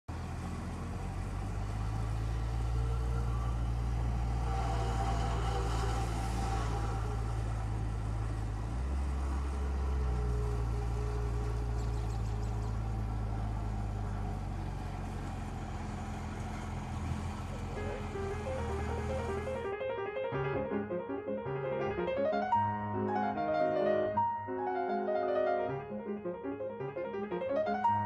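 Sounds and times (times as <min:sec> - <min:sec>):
car engine running: 0:00.1 - 0:19.7.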